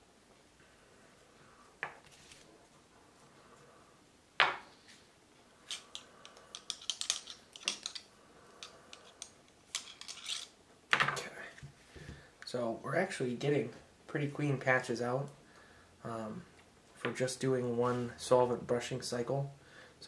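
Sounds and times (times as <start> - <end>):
rod clicking and scraping on metal: 5.7 - 10.6.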